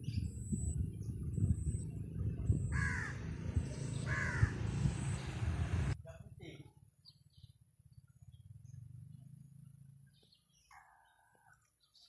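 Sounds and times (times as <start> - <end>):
bird harsh call: 3.9 - 4.7.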